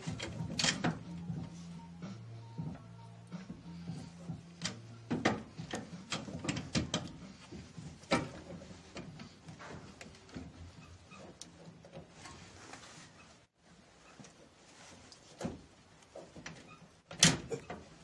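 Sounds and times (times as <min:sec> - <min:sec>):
metal suspension parts knocking: 0:00.0 - 0:01.6, 0:03.5 - 0:10.7.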